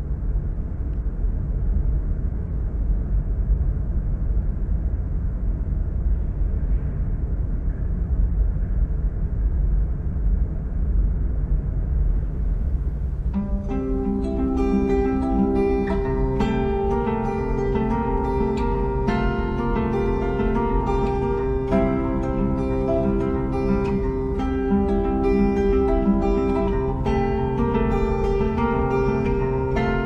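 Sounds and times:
guitar music: 13.3 - 30.0.

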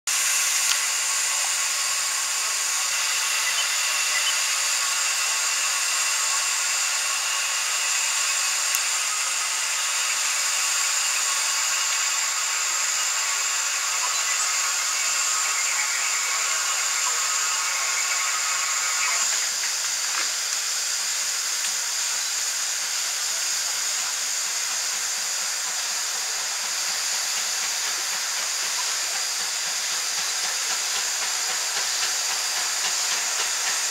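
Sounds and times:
steam hissing from locomotive: 0.1 - 33.9.

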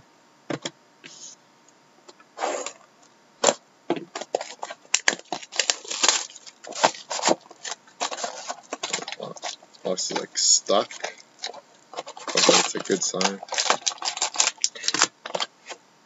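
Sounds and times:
cardboard snapping and rubbing: 3.4 - 15.8
plastic wrap crinkling and tearing: 3.4 - 15.8.

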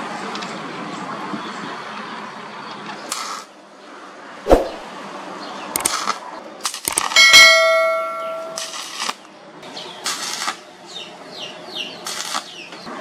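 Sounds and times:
sharp knock: 4.5 - 4.8
quick clicks: 5.8 - 7.2
bell ding: 7.2 - 8.8
welding arc crackle: 8.6 - 9.2, 10.0 - 10.6, 12.0 - 12.5.

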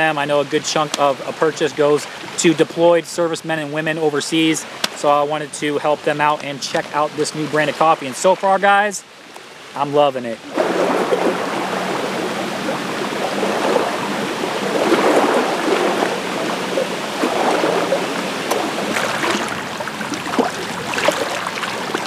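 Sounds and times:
waves lapping on pebbles: 10.5 - 22.0.

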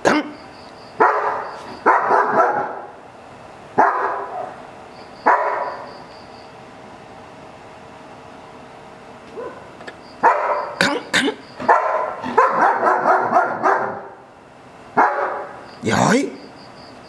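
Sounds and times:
dog barking loudly: 1.0 - 3.0, 3.8 - 5.9, 9.3 - 10.9, 11.6 - 14.3, 14.9 - 15.7.

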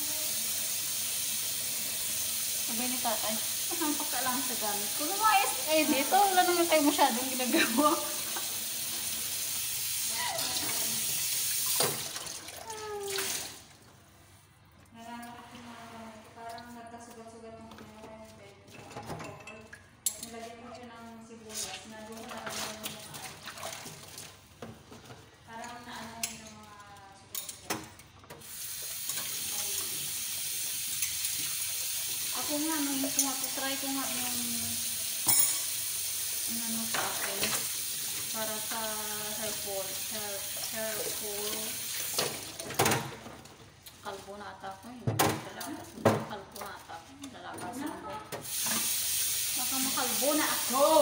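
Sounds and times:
water running into sink: 0.0 - 13.7, 28.3 - 46.5, 47.8 - 51.0
tap running into a sink: 10.5 - 12.4.

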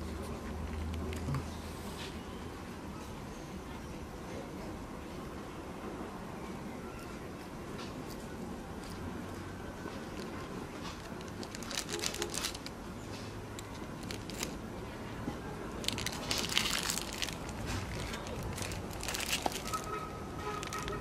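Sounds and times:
foil wrapper crinkling: 10.2 - 12.8, 13.6 - 14.6, 15.8 - 21.0.

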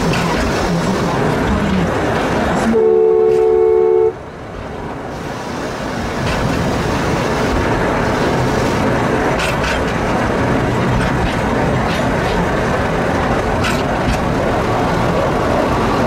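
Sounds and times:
train running on track: 0.0 - 16.0
locomotive horn two-note blast: 2.7 - 4.2.

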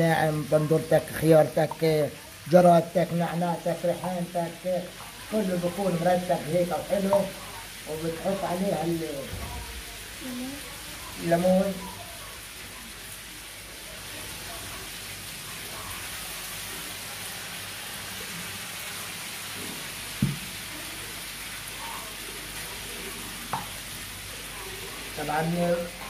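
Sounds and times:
steady sizzling hiss: 0.0 - 26.0
sharp knocks: 20.2 - 20.4.

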